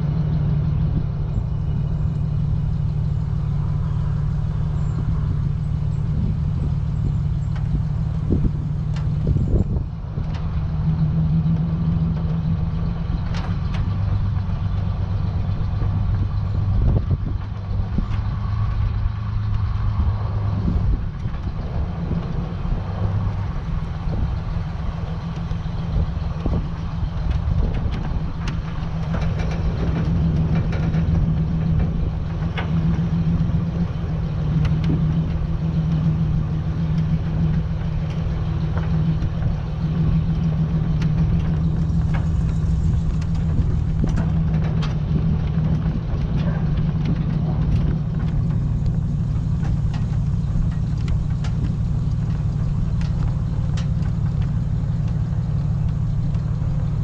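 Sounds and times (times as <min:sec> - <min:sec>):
vehicle engine running: 0:00.0 - 0:57.0
load knocking and rattling: 0:25.0 - 0:56.9.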